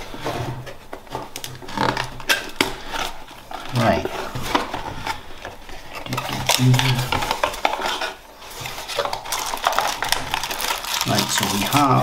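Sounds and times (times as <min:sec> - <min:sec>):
cardboard box rustling and scraping: 0:02.8 - 0:10.6.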